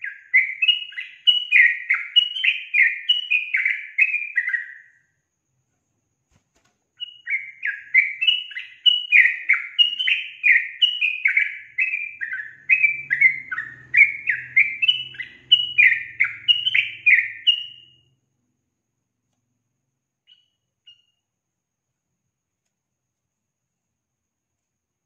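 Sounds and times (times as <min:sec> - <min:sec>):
bird singing: 0:00.0 - 0:05.2, 0:07.0 - 0:18.2, 0:20.2 - 0:21.4.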